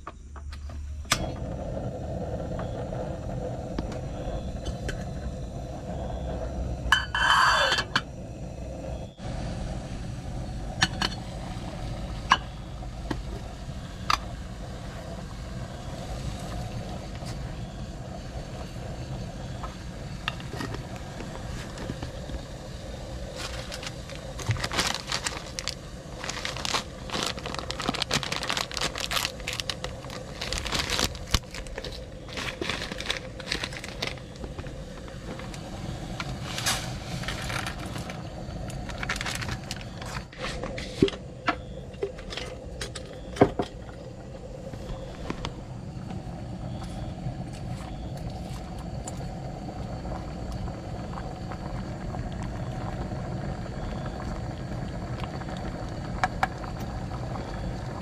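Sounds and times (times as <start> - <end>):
pot of water boiling: 1.1 - 58.0
plastic packet crinkling and tearing: 23.3 - 34.4, 38.8 - 39.9.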